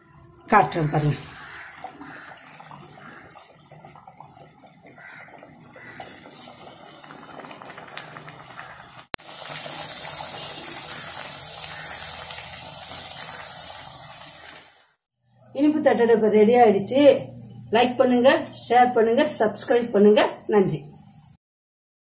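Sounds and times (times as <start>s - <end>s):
oil sizzling and bubbling: 0.4s - 15.1s.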